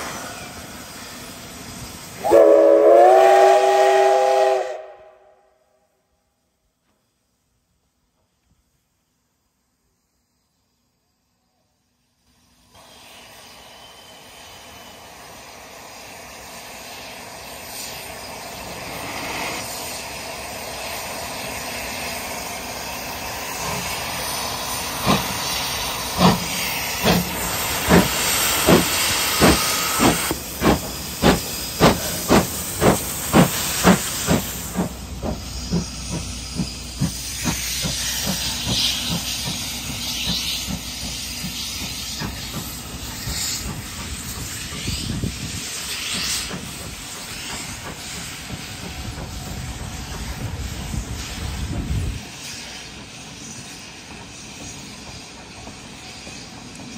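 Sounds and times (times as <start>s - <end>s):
steam hissing: 0.0s - 5.0s, 9.1s - 56.9s
steam locomotive chuffing: 0.0s - 5.3s, 12.3s - 56.9s
train rumbling: 0.0s - 5.4s, 12.3s - 56.9s.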